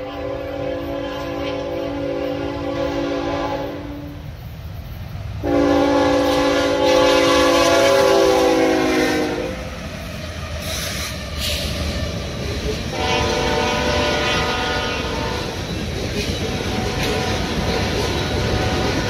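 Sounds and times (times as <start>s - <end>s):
locomotive air horn blasts: 0.0s - 4.2s, 5.4s - 9.6s, 12.9s - 15.6s, 16.4s - 19.0s
train rumbling by: 0.0s - 19.0s.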